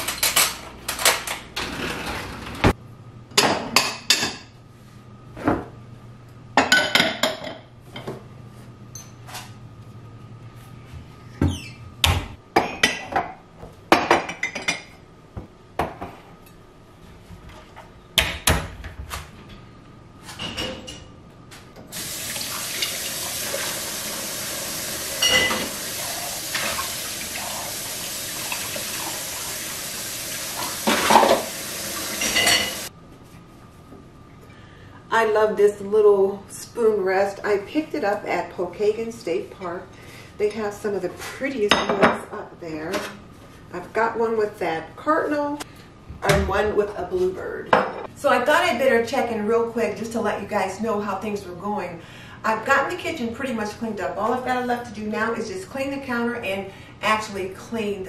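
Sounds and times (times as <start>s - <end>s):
dishes and utensils clattering: 25.2s - 25.8s, 30.7s - 31.5s, 32.2s - 32.9s.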